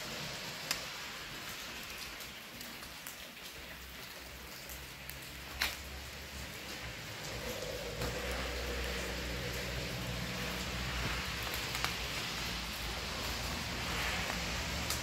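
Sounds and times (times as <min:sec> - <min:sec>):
rain falling: 0:00.0 - 0:15.0.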